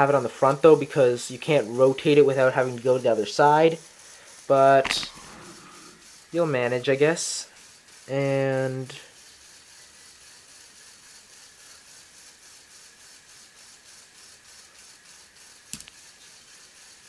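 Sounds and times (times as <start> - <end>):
pneumatic pump whirring: 4.1 - 6.7
sharp click: 4.8 - 6.0.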